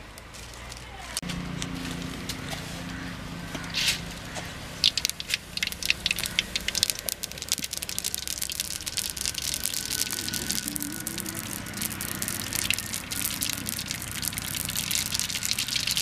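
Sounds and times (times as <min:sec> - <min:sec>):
oil crackling and popping: 0:04.8 - 0:16.0.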